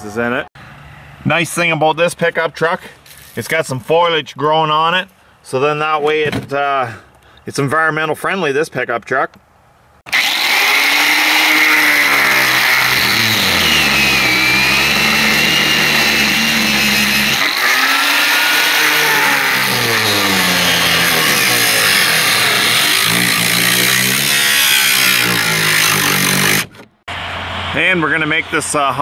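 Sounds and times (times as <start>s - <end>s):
angle grinder cutting steel: 10.1s - 26.7s.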